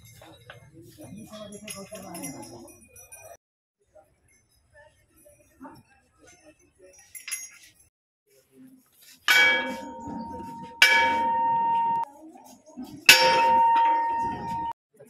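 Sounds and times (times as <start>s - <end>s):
temple bell ringing: 9.3s - 12.1s, 13.1s - 14.8s.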